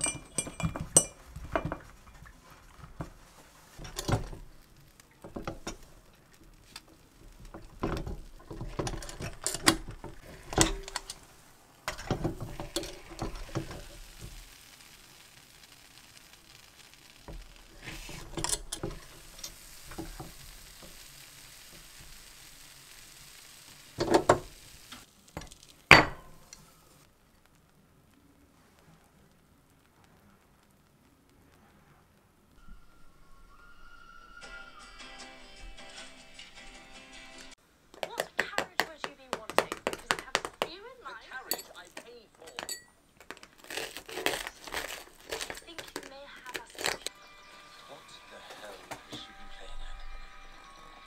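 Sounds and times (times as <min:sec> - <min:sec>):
dishes clinking: 0:00.0 - 0:02.4, 0:07.7 - 0:11.3, 0:25.4 - 0:26.6, 0:41.4 - 0:44.1
faint sizzle: 0:00.0 - 0:51.0
metal pan opening and shutting: 0:03.8 - 0:04.6, 0:07.3 - 0:14.2, 0:17.8 - 0:21.0.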